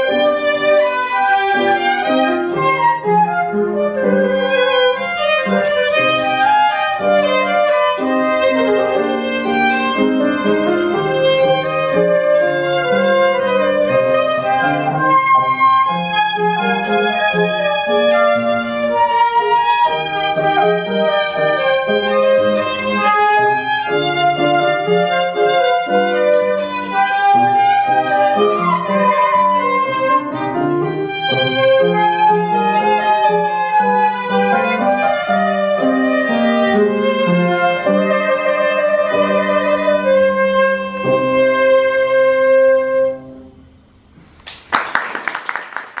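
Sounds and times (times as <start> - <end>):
flute melody: 0.0 - 43.5
violin melody: 0.0 - 43.5
piano accompaniment: 0.0 - 46.0
audience applauding: 44.3 - 46.0.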